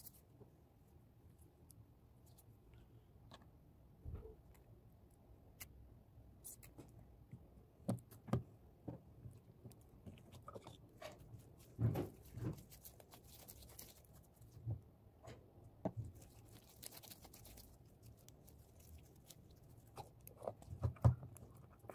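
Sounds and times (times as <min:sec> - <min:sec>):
slime squished by hands: 0:10.2 - 0:14.6, 0:16.0 - 0:21.9.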